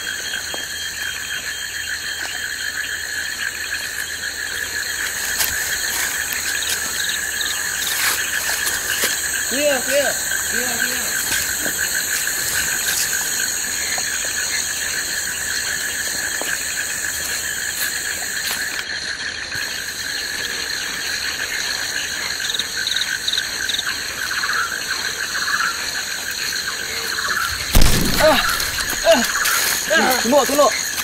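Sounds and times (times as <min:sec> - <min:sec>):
insects buzzing: 0:00.0 - 0:31.0
sharp thump: 0:27.7 - 0:29.1.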